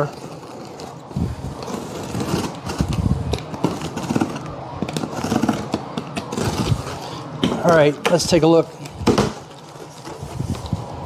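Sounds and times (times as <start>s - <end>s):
tape peeling from cardboard: 0.0s - 7.2s.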